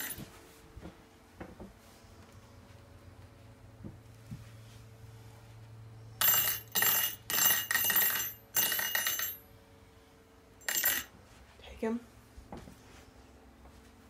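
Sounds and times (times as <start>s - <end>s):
rattle reel ringing: 6.2s - 9.4s.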